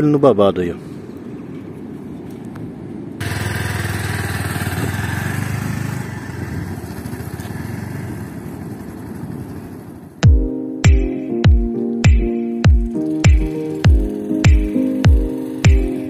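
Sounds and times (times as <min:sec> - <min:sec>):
motorcycle engine riding off: 0:03.2 - 0:10.2, 0:12.8 - 0:16.0.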